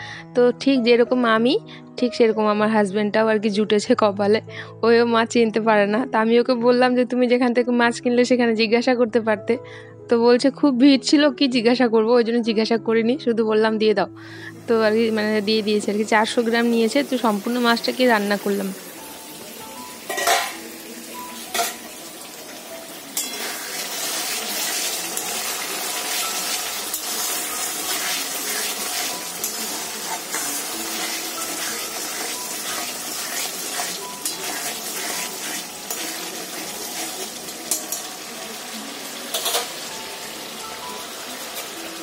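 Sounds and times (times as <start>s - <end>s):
curry sizzling and bubbling: 14.5s - 42.0s
metal spatula scraping pan: 20.0s - 20.7s, 21.5s - 22.0s, 23.1s - 38.1s
steel lid clanking: 20.0s - 20.7s, 21.5s - 21.9s, 39.3s - 39.8s.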